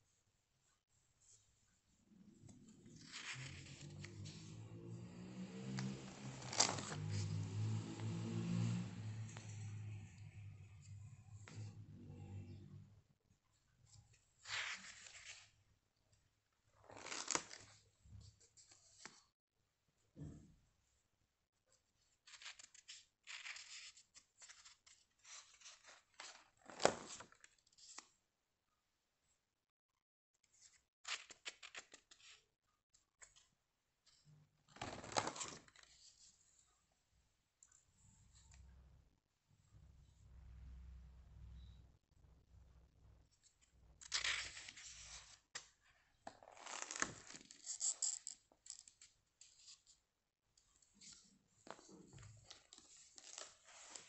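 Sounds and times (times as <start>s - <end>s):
page flapping: 2.8s - 4.6s, 5.6s - 8.1s, 16.8s - 17.8s, 22.3s - 28.0s, 34.7s - 36.1s, 44.0s - 47.7s
paper pages rustling: 2.8s - 4.6s, 5.5s - 8.1s, 14.4s - 15.6s, 16.8s - 17.8s, 22.2s - 28.1s, 34.7s - 36.4s, 43.5s - 49.9s, 50.9s - 54.0s.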